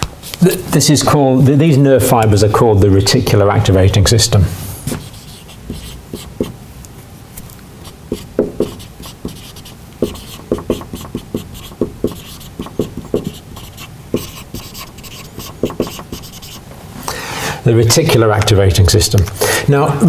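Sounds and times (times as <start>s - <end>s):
marker squeaking on whiteboard: 4.9s - 6.5s, 7.8s - 16.6s.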